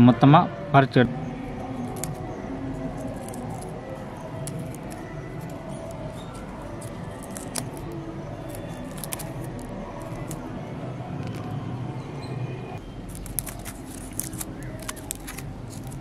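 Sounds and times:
leaves and vine stems rustling: 0:01.8 - 0:10.5, 0:13.0 - 0:16.0.

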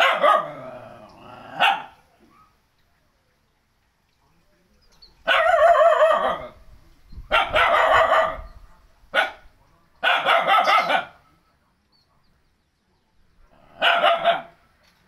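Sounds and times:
dog barking: 0:00.0 - 0:00.6, 0:01.5 - 0:02.5, 0:05.3 - 0:06.6, 0:07.3 - 0:11.2, 0:13.6 - 0:14.6.

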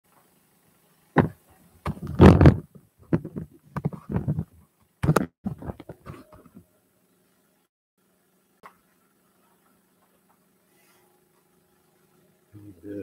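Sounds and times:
man speaking: 0:12.6 - 0:13.0.

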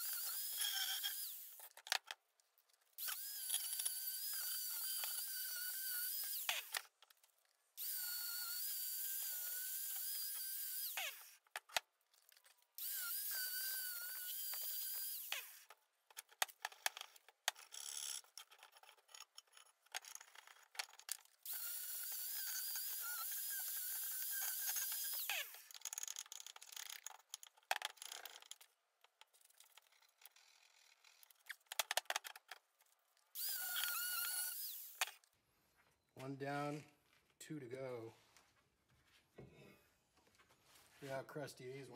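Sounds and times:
angle grinder whine: 0:33.4 - 0:35.1.

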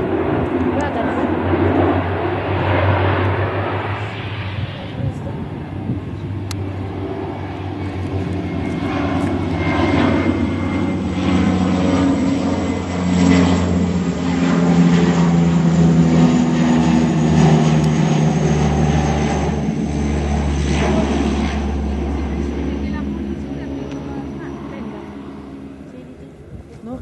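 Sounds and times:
turboprop plane droning overhead: 0:00.0 - 0:27.0.

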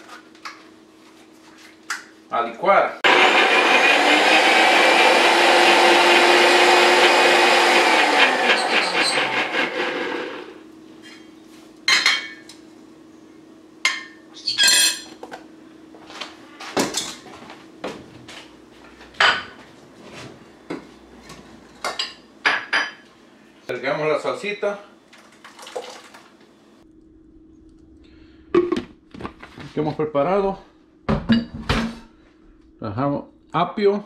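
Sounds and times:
blender running: 0:03.0 - 0:10.6.

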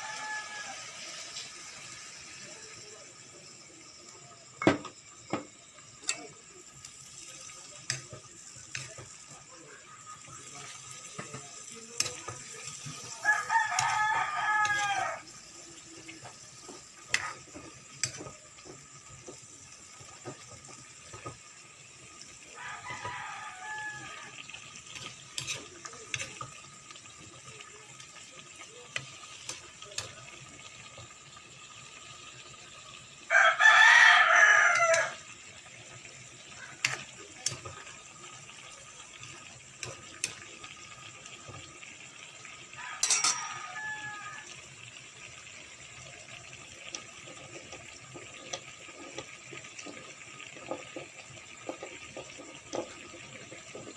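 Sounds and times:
rooster crowing: 0:00.0 - 0:01.1, 0:13.1 - 0:15.3, 0:22.5 - 0:24.4, 0:33.3 - 0:35.2, 0:42.8 - 0:44.6
spatula scraping a frying pan: 0:10.2 - 0:21.3, 0:24.3 - 0:26.6, 0:43.0 - 0:43.6, 0:46.9 - 0:53.9.

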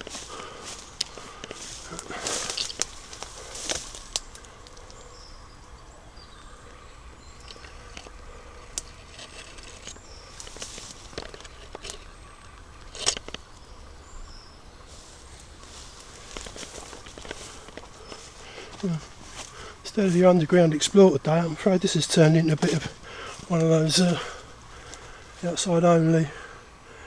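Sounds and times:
twigs snapping: 0:00.0 - 0:05.0, 0:07.4 - 0:13.7, 0:15.4 - 0:19.9
footsteps in undergrowth: 0:00.0 - 0:05.4, 0:06.3 - 0:26.5
rustling of plants: 0:00.0 - 0:27.0.

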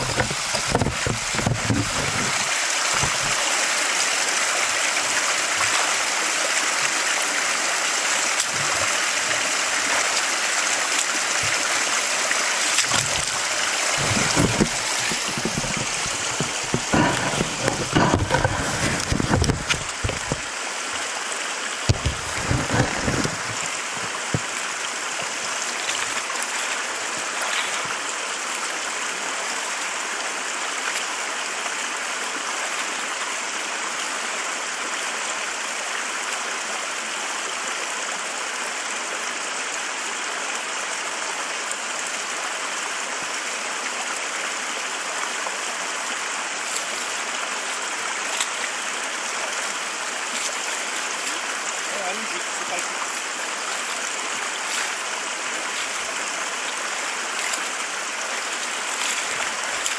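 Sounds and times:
river running over stones: 0:00.0 - 0:59.9
low thumps: 0:14.0 - 0:20.5.

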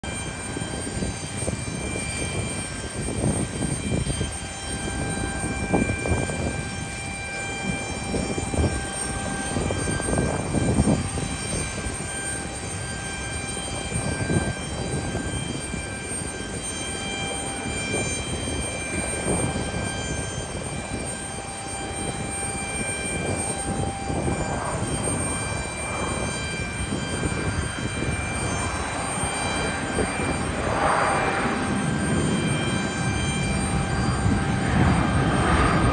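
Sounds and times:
jet engines whining and rumbling: 0:00.0 - 0:35.9.

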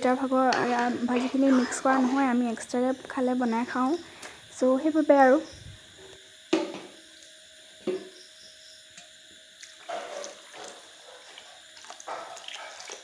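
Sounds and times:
liquid sloshing in pan: 0:09.7 - 0:13.0.

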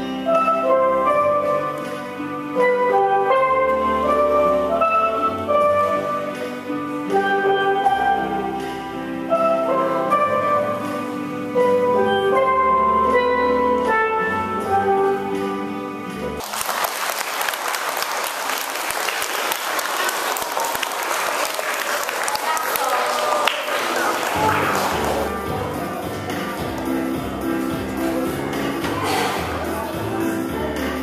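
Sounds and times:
steel pan band melody: 0:00.0 - 0:16.4, 0:24.3 - 0:31.0
applause: 0:16.4 - 0:25.4.

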